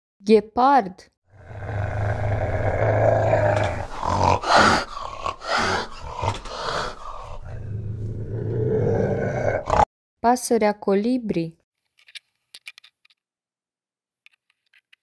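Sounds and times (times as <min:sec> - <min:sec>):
harsh cheetah vocal bursts: 0:01.3 - 0:09.9
cheetah rumbling: 0:01.4 - 0:09.9.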